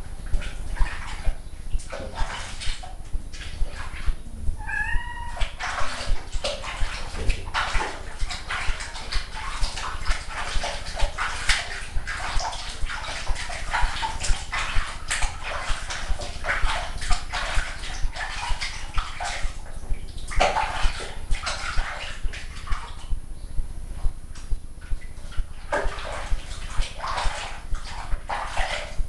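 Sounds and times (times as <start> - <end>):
water splashing and sloshing: 0.0 - 29.0
cat crying out: 4.5 - 5.6.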